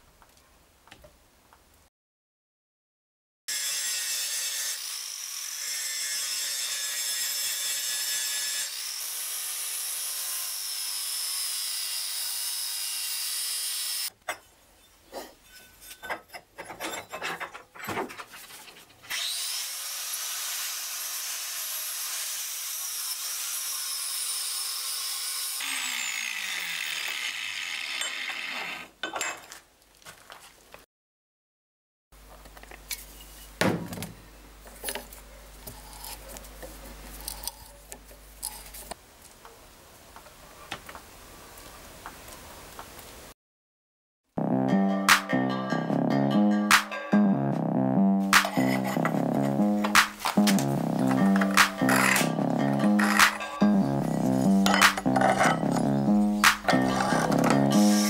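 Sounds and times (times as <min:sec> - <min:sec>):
angle grinder cutting steel: 0:03.5 - 0:14.1, 0:19.1 - 0:28.8, 0:51.1 - 0:58.0.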